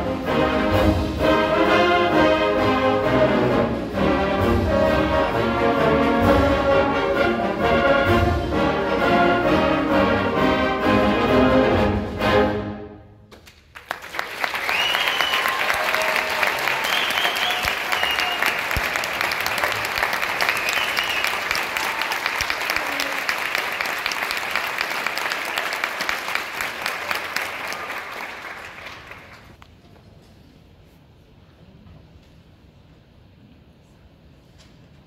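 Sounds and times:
audience applauding: 13.4s - 29.6s
whoops and cheers: 14.6s - 18.8s, 20.4s - 23.3s.

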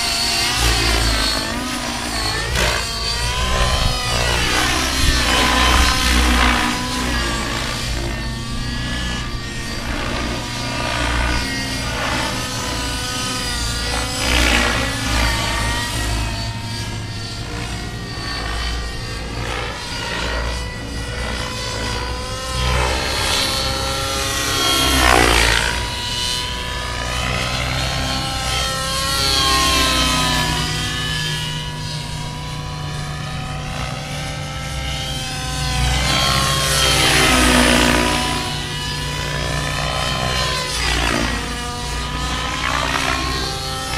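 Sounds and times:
model helicopter engine and rotor: 0.0s - 43.9s.

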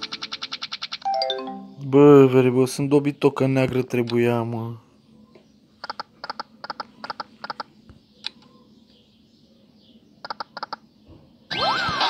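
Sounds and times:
slot machine reel ticks: 0.0s - 1.1s.

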